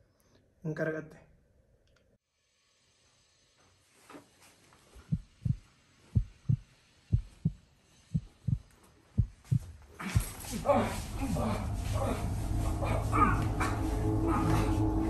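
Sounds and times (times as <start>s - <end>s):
heartbeat double thumps: 5.0s - 10.4s.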